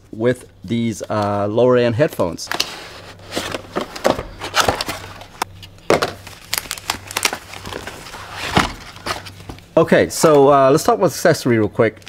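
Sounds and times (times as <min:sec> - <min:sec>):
paper wrap crinkling: 0:02.4 - 0:09.6
cardboard box being unboxed: 0:02.5 - 0:09.6.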